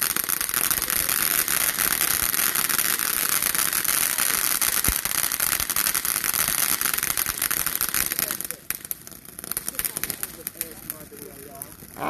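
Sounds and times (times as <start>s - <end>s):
firework fountain hissing and crackling: 0.0s - 12.0s.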